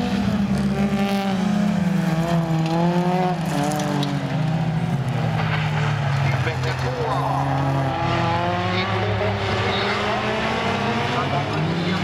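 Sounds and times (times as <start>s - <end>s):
racing car engines: 0.0s - 12.0s.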